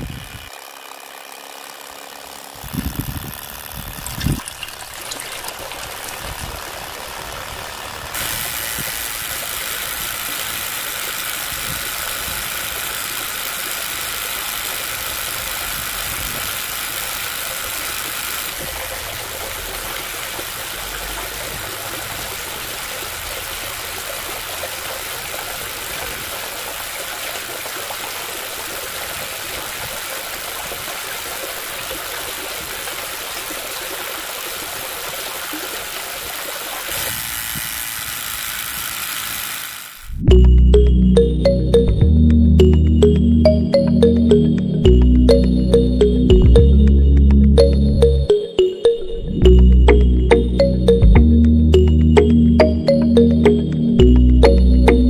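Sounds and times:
small motor whirring: 0.0s - 40.3s.

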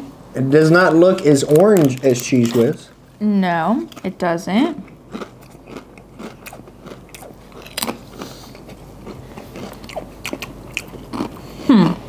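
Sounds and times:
chips crunching while chewed: 1.0s - 2.8s, 4.8s - 12.0s.

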